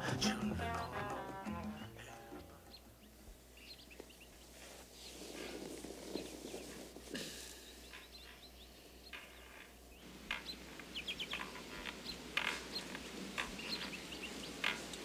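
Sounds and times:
small birds chirping: 0.0 - 15.0
bedsheets rustling: 3.3 - 7.9.

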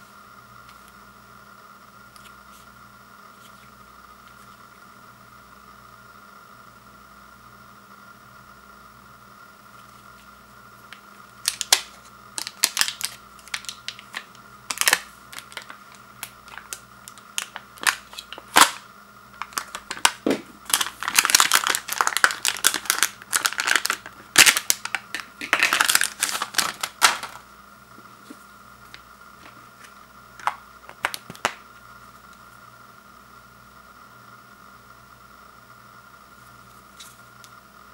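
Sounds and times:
plastic shrink wrap crackling: 11.4 - 27.4, 29.4 - 31.6.

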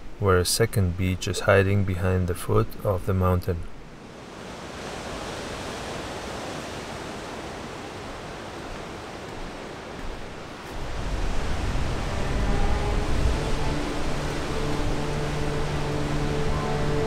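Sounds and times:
ocean surf breaking: 3.7 - 17.0.

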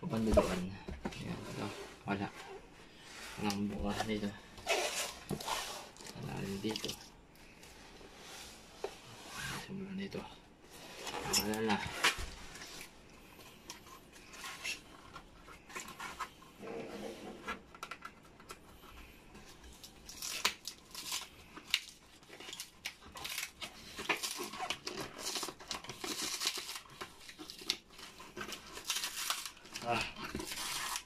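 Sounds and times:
plastic wrap crinkling and tearing: 3.4 - 7.1, 19.5 - 31.0.

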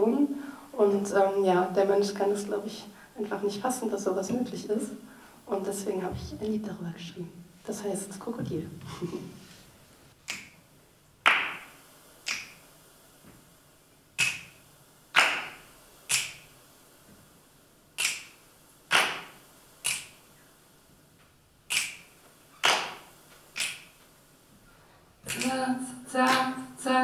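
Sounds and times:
dry percussive clicks: 18.0 - 20.2.

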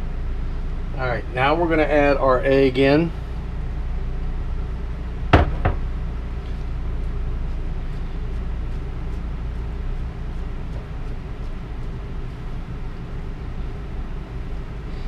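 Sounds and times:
steady low hum: 0.0 - 15.0
knocks against electric skillet: 5.4 - 5.8.

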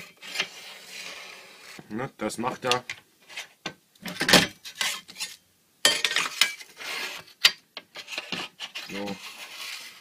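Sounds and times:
metal scraping rub: 0.0 - 1.8, 6.4 - 7.3, 7.9 - 10.0.

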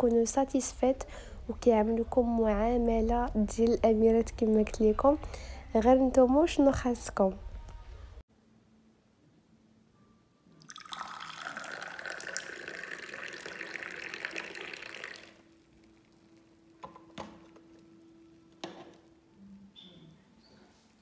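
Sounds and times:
tea pouring into a glass: 10.6 - 16.8.

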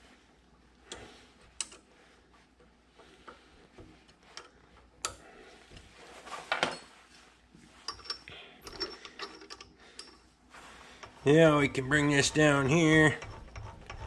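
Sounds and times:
metal clicks and clinks: 7.9 - 10.2.

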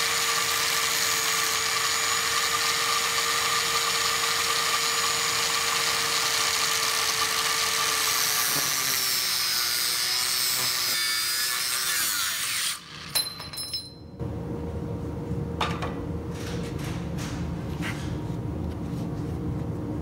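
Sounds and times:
angle grinder cutting metal: 0.0 - 13.2.

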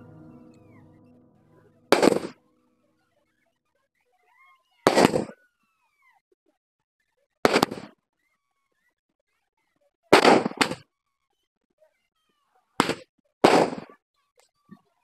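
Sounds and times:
fireworks bangs: 0.0 - 2.4.

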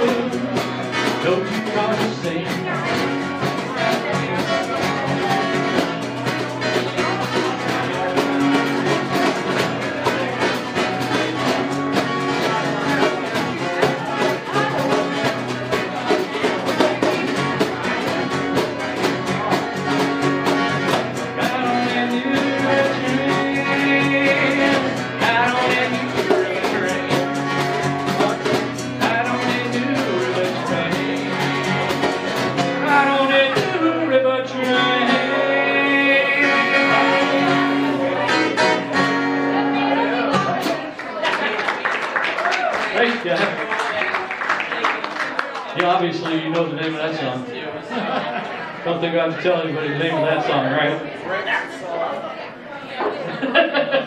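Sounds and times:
strummed acoustic guitar: 0.0 - 41.0.

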